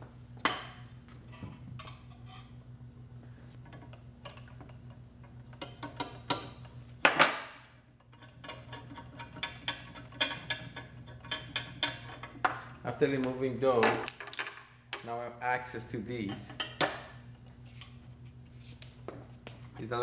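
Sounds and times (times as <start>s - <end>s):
metal parts clinking on tabletop: 13.8s - 14.8s.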